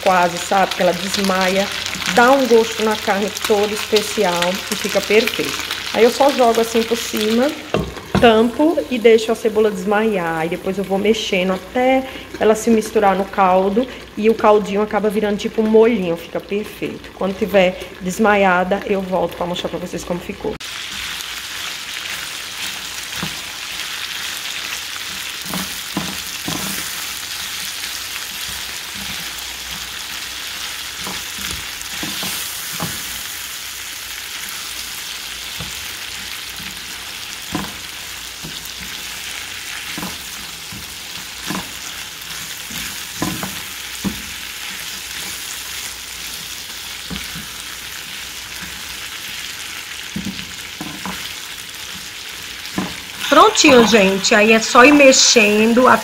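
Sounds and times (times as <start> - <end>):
meat and onions sizzling: 0.0 - 16.1, 20.6 - 56.0
spatula scraping pan: 20.8 - 33.5, 34.3 - 54.2.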